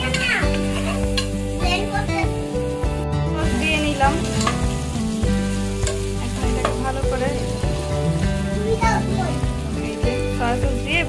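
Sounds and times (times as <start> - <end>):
metal spatula stirring: 0.0 - 1.6, 3.5 - 7.8
background music: 0.0 - 11.0
food sizzling in oil: 0.0 - 11.0.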